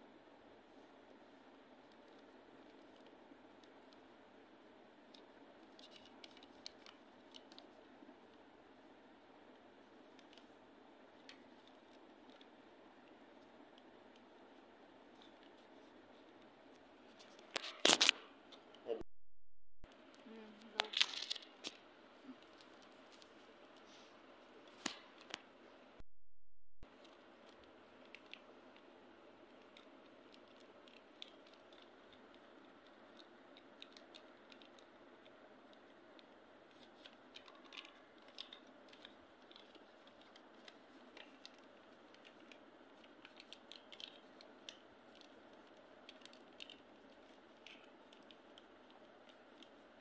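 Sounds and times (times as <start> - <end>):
paper crackling as folded: 5.6 - 7.8, 20.7 - 23.3, 29.5 - 50.0.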